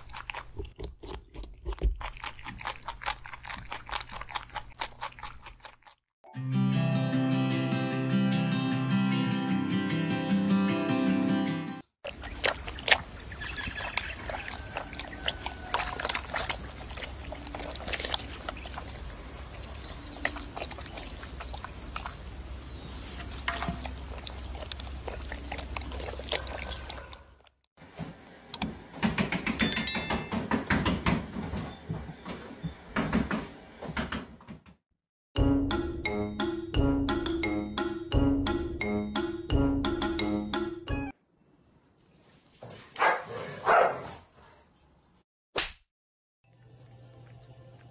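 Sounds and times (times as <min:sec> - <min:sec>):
animal lapping water: 0:12.0 - 0:27.2
high electronic chirp: 0:40.0 - 0:41.1.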